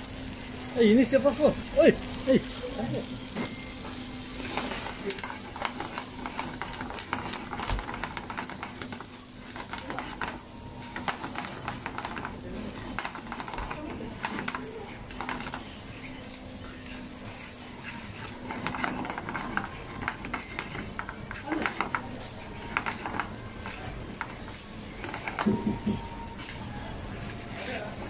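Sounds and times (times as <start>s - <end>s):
noodles sizzling in frying pan: 0.0s - 28.0s
tongs clicking and scraping pan: 4.0s - 28.0s.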